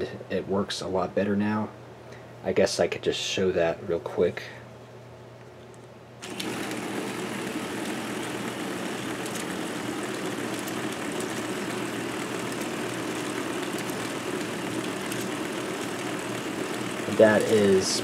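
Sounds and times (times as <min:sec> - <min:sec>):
toy motor whirring: 0:07.8 - 0:18.0.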